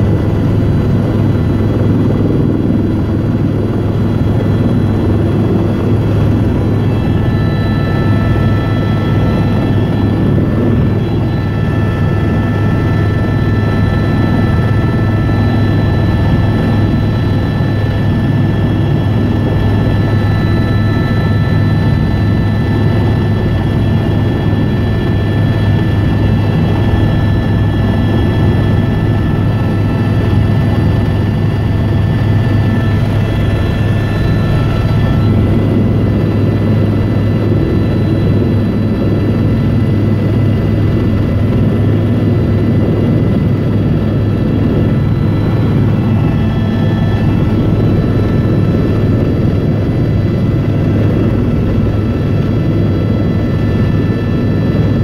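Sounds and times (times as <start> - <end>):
helicopter engine drone: 0.0 - 55.0
high whining tones: 5.4 - 37.6.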